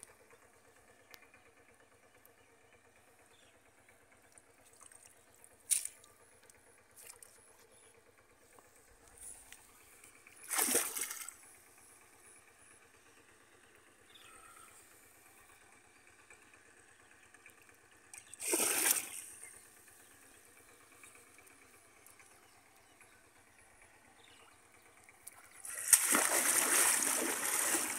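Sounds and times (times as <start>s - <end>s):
shallow water splashes: 10.4s - 11.4s, 18.2s - 19.4s, 25.4s - 27.9s.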